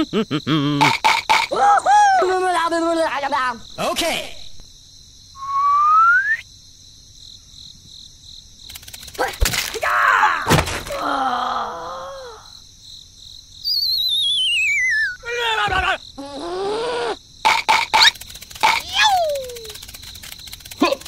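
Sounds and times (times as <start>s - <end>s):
cartoon whistle: 5.4s - 6.4s, 13.6s - 15.3s
falling whistle with warble: 5.4s - 6.5s, 13.6s - 15.2s
cartoon thuds: 10.4s - 11.0s
squeaky groaning cartoon voice: 15.1s - 19.7s.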